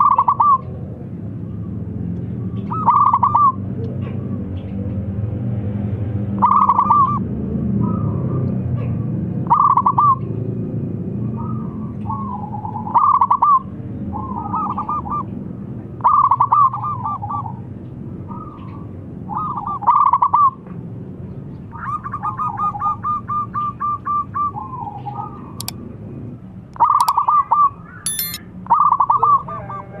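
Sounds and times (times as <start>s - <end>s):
sharp clicks: 28.1s - 28.4s.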